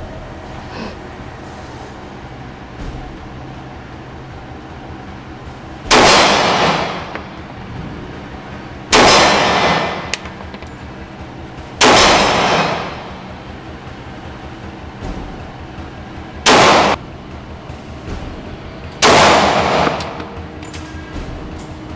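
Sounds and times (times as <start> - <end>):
pistol shots echoing indoors: 5.8 - 7.6, 8.8 - 14.1, 16.4 - 17.0, 18.9 - 21.7.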